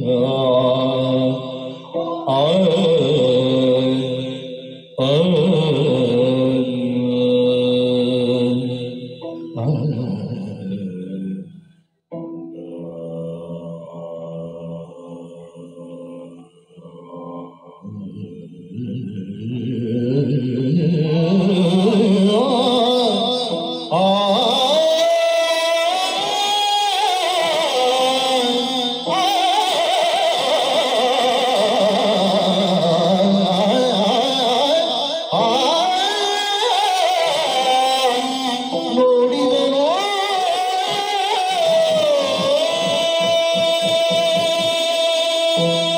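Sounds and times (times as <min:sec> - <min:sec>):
person singing ornamented melody: 0:00.0 - 0:11.5, 0:12.1 - 0:45.9
drum strokes: 0:39.9 - 0:45.9.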